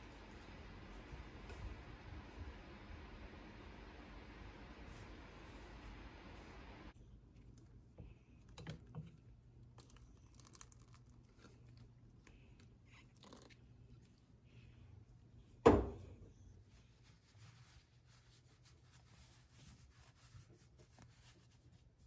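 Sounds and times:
low hum: 0:00.0 - 0:07.4.

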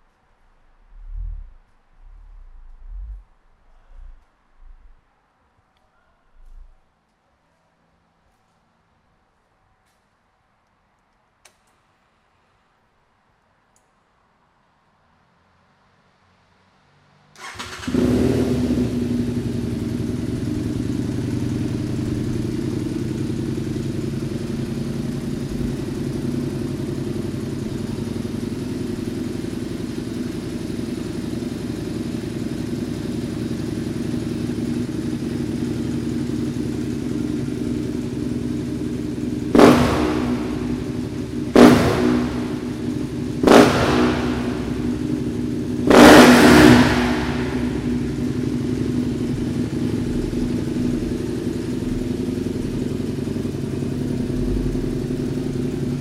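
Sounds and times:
motorcycle engine idling: 0:00.7 - 0:05.0, 0:06.4 - 0:06.8, 0:17.4 - 0:56.0
engine revving: 0:00.8 - 0:05.0, 0:17.4 - 0:32.5, 0:33.2 - 0:56.0.

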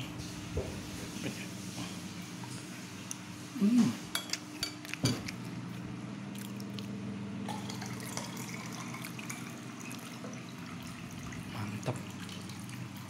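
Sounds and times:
steady low hum: 0:00.0 - 0:13.0
person humming: 0:03.5 - 0:04.0
wet chewing sounds: 0:04.5 - 0:07.0.

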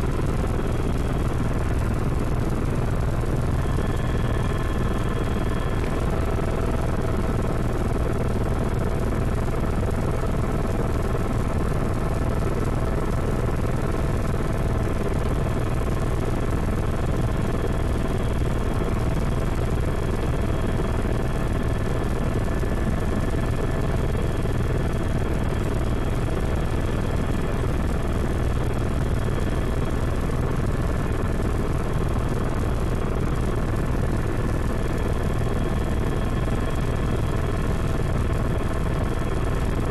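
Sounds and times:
high steady whine: 0:00.0 - 0:10.0
helicopter rotor and engine drone: 0:00.0 - 0:39.9.

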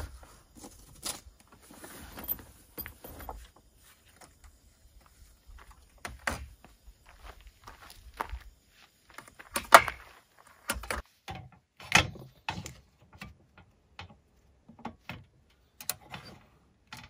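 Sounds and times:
fabric rustling: 0:01.6 - 0:04.1.

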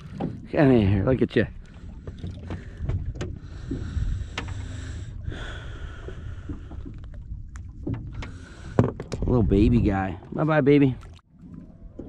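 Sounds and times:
water around boat: 0:00.0 - 0:12.0
wind rumble on microphone: 0:01.9 - 0:10.3.

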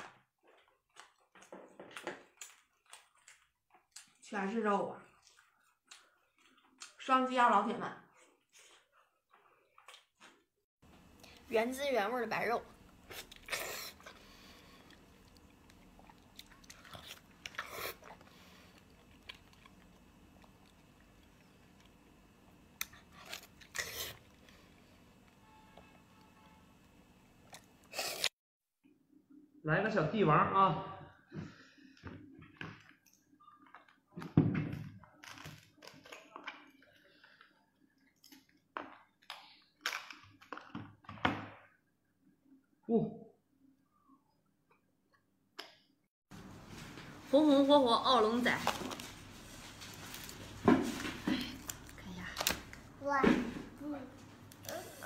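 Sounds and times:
chewing: 0:13.0 - 0:22.0.

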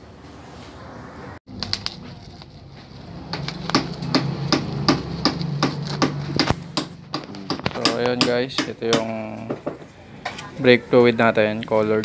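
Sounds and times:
plastic wrapping crinkling: 0:01.5 - 0:04.0.

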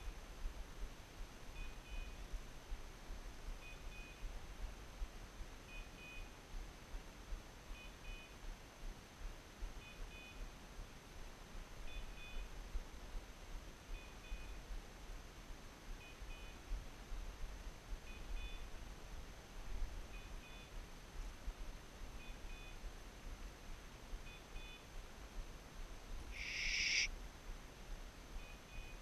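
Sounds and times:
high beeps from collar: 0:26.4 - 0:27.1.

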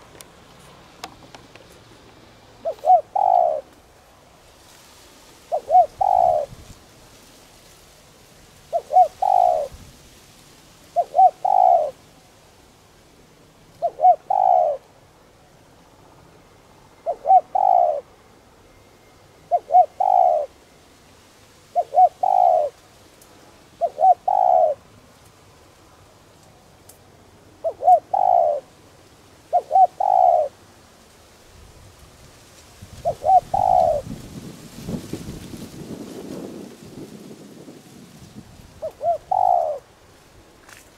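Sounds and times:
dove cooing: 0:02.6 - 0:03.8, 0:05.5 - 0:06.7, 0:08.7 - 0:09.8, 0:10.9 - 0:12.0, 0:13.8 - 0:14.8, 0:17.0 - 0:18.1, 0:19.5 - 0:20.6, 0:21.7 - 0:22.8, 0:23.8 - 0:24.9, 0:27.6 - 0:28.8, 0:29.5 - 0:30.6, 0:33.0 - 0:34.2, 0:38.7 - 0:39.9.

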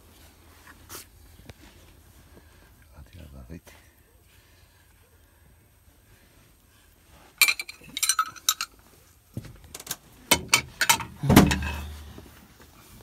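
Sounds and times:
wrenches clanking on metal fittings: 0:07.4 - 0:08.8, 0:09.8 - 0:12.0.

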